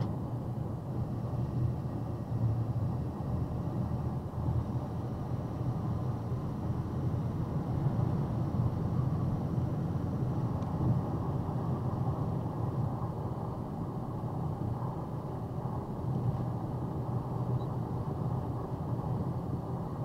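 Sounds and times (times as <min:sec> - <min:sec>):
car road and engine rumble: 0:00.0 - 0:20.0.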